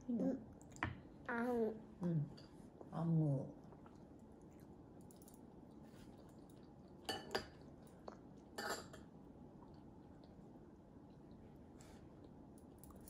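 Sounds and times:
cutlery clinking on ceramic plate: 7.1 - 7.6, 8.6 - 9.0.

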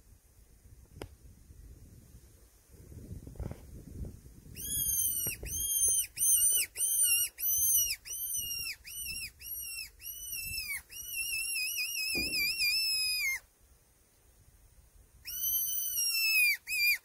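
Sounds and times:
fox whistle squealing calls: 4.6 - 13.5, 15.2 - 17.0.

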